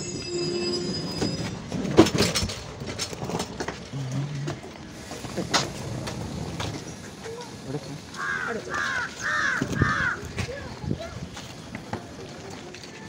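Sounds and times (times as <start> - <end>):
train low rumble: 0.0 - 8.6
clanks and knocks: 1.2 - 3.9.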